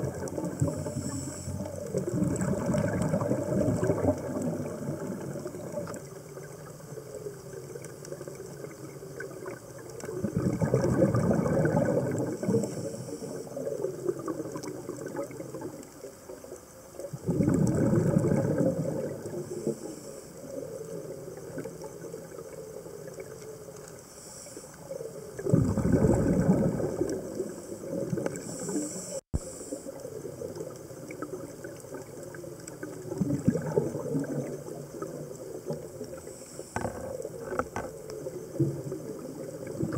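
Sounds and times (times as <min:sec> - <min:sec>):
exhaled breath bubbling underwater: 0:00.0 - 0:06.1, 0:08.6 - 0:15.8, 0:17.1 - 0:23.4, 0:24.1 - 0:39.9
faint regulator hiss: 0:00.0 - 0:10.3, 0:11.7 - 0:17.2, 0:19.0 - 0:25.5, 0:26.7 - 0:39.9.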